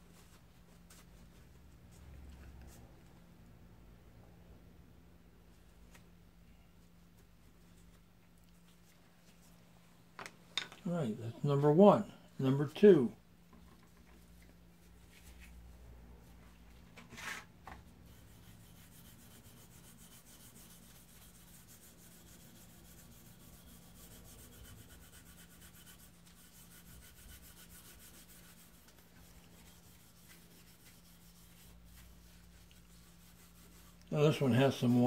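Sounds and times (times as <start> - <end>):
gloved hand rubbing wood: 18.1 - 35.0.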